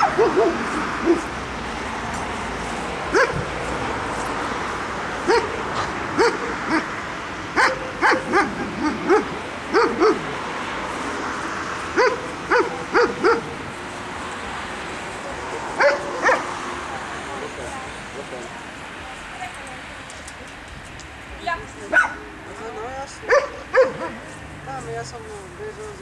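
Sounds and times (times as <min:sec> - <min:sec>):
dog barking: 0:00.0 - 0:01.3, 0:03.1 - 0:03.5, 0:05.2 - 0:06.9, 0:07.6 - 0:10.4, 0:12.0 - 0:13.6, 0:15.8 - 0:16.5, 0:21.9 - 0:22.2, 0:23.2 - 0:24.3.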